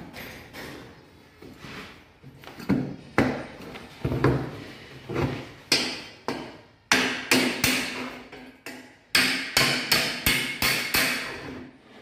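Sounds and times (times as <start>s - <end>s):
hammer striking steel cable tray: 5.7s - 11.6s.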